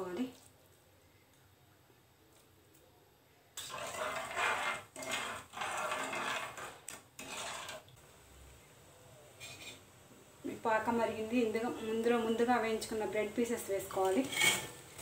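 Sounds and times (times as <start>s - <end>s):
metal spatula scraping metal pan: 3.6s - 7.9s, 9.4s - 9.8s, 14.0s - 15.0s.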